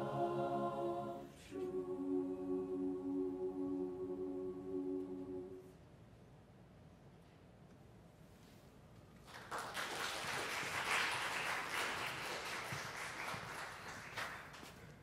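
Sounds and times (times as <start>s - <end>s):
audience applauding: 9.2s - 15.0s.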